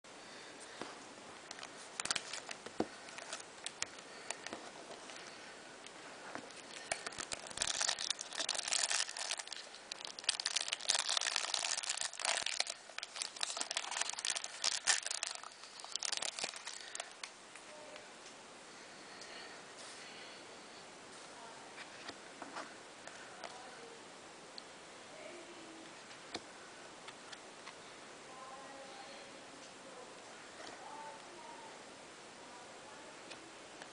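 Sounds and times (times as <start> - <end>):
foil wrapper crinkling: 1.5 - 5.3, 6.5 - 17.3.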